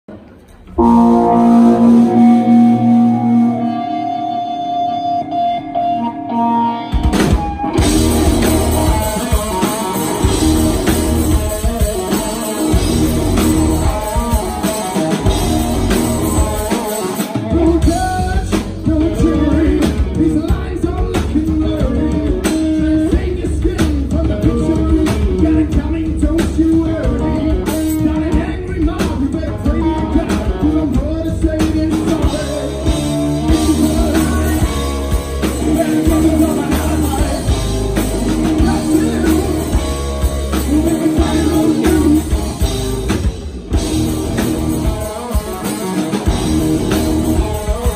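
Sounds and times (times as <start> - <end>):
electric guitars: 0.1 - 47.9
drum kit beat: 0.8 - 5.5, 6.8 - 47.9
person singing: 0.8 - 7.0, 16.2 - 42.9.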